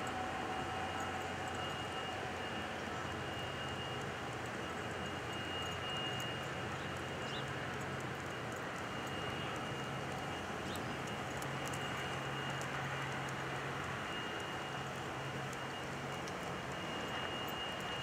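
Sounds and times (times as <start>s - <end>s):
distant traffic hum: 0.0s - 18.0s.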